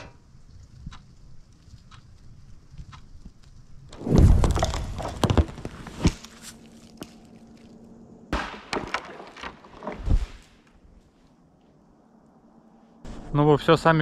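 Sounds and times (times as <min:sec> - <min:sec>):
wood cracking knocks: 0:03.9 - 0:06.3, 0:08.3 - 0:10.5
tree crashing into snow: 0:03.9 - 0:07.2, 0:08.3 - 0:10.7.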